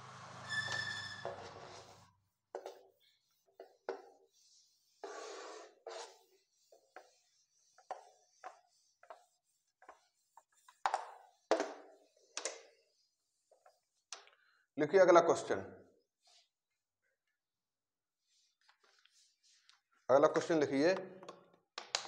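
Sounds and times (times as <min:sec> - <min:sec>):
eraser wiping whiteboard: 0:00.5 - 0:14.1, 0:16.1 - 0:16.6, 0:18.1 - 0:19.8.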